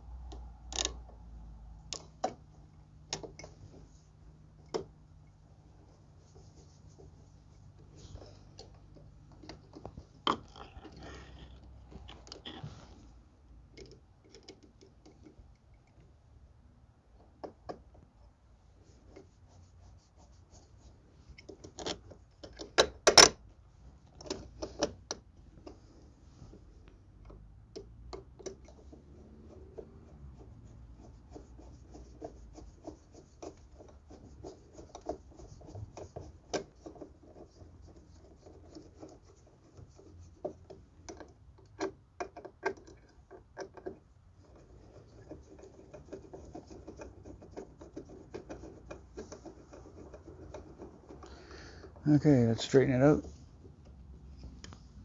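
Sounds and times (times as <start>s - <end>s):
screwdriver scraping and clicking: 13.7s - 16.1s, 21.3s - 23.4s, 32.2s - 51.3s.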